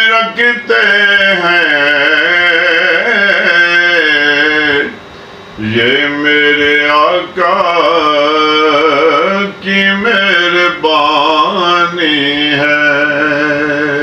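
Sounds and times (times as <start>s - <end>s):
man singing devotional chant: 0.0s - 5.0s, 5.6s - 14.0s.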